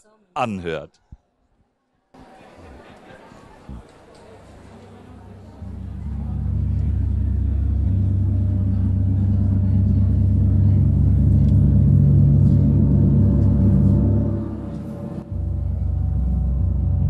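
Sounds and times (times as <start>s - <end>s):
large gongs droning: 5.5s - 17.0s.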